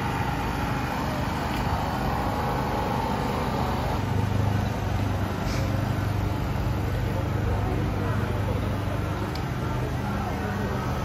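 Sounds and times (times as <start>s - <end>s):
outdoor street noise: 0.0s - 11.0s
small engine humming: 0.0s - 11.0s.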